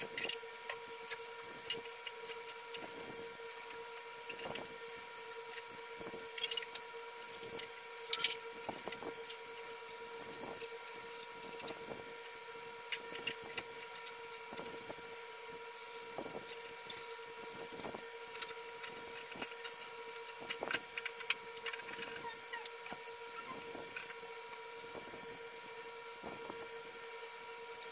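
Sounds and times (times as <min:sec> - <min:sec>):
steady high-pitched hum: 0:00.0 - 0:27.9.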